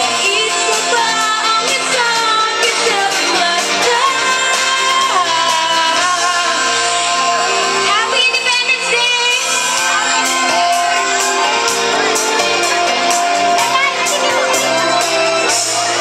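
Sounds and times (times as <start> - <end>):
woman singing into microphone: 0.0 - 10.5
pop-rock backing music: 0.0 - 16.0.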